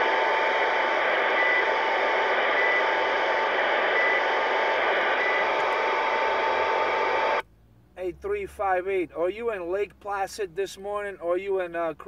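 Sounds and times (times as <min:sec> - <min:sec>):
radio static hiss: 0:00.0 - 0:07.4
steady radio tone: 0:00.0 - 0:07.4.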